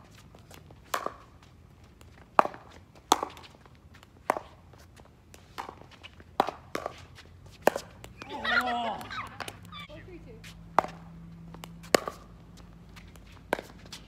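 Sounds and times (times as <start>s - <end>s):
paddles hitting plastic ball: 1.9s - 4.6s, 5.2s - 10.0s, 10.7s - 14.0s.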